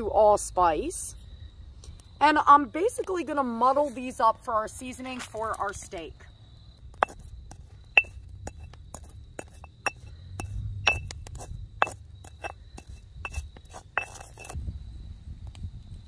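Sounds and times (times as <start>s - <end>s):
stone pestle clinking in mortar: 8.0s - 8.7s, 9.4s - 11.2s.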